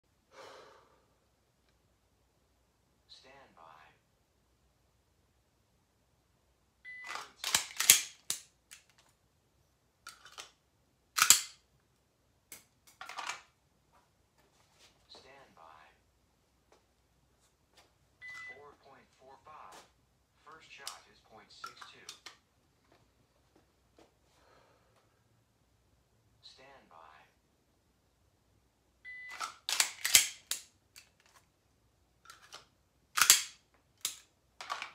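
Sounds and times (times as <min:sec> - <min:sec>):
pistol snapping and clacking: 0:07.1 - 0:09.0, 0:10.1 - 0:10.6, 0:11.2 - 0:11.6, 0:12.5 - 0:13.4, 0:29.3 - 0:31.3, 0:32.3 - 0:34.9
high beep: 0:18.2 - 0:18.6.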